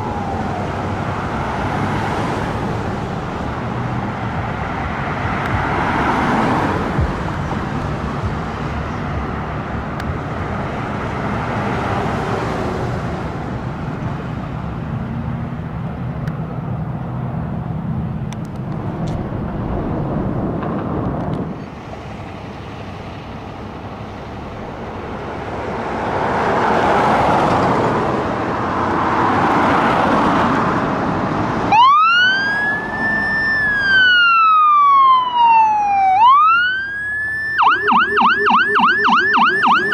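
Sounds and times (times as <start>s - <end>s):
fire engine siren wailing: 0.0s - 2.6s, 31.7s - 39.9s
street traffic: 0.0s - 39.9s
heavy truck engine running: 17.3s - 26.2s.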